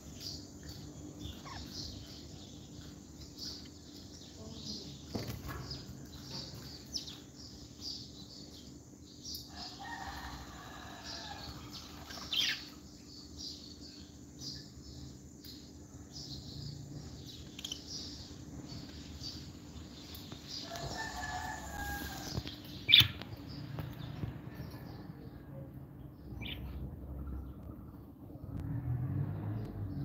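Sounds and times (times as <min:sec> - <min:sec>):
lovebirds chirping: 0:00.0 - 0:10.0.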